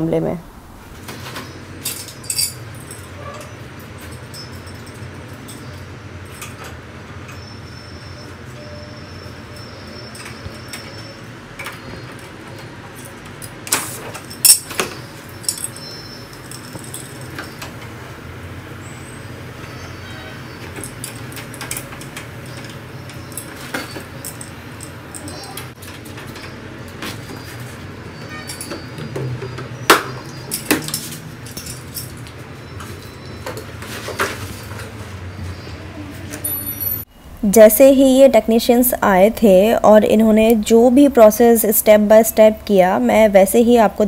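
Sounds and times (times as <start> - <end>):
tools clinking on metal pipes: 1.8 - 7.5, 9.5 - 17.8, 20.7 - 26.6, 28.2 - 33.7
steady low hum: 34.7 - 44.0.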